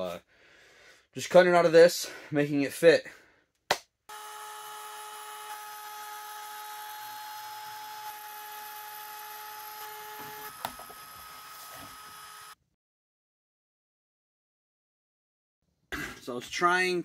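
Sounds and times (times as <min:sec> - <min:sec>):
trim router whining: 0:04.1 - 0:12.6.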